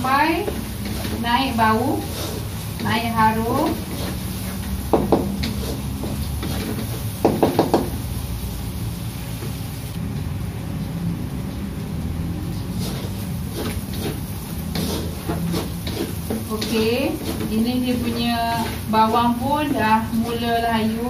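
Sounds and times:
onions sizzling in a wok: 0.0 - 21.0
spatula knocking against pan: 4.9 - 5.6, 7.2 - 8.0.

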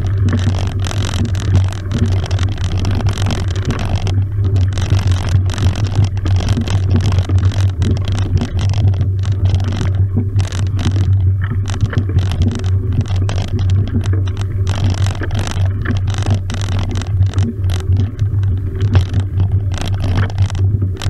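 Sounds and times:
bike rolling on tarmac: 0.0 - 21.0
small clicks and rattles from bike: 0.0 - 21.0.

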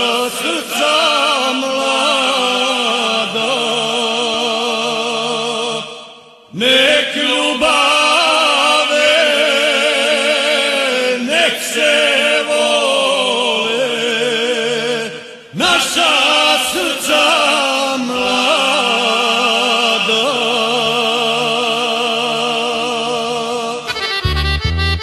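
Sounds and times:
male vocal group singing: 0.0 - 24.1.

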